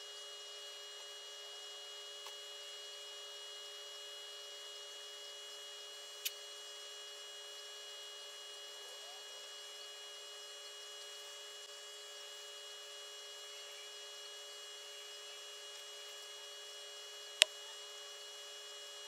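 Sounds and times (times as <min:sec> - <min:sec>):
electrical hum with whining tones: 0:00.0 - 0:19.0
sharp click: 0:06.2 - 0:06.4.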